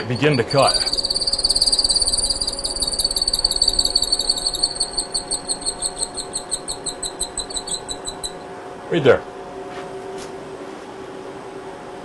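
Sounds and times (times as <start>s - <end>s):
milling cutter squealing: 0.0s - 8.4s.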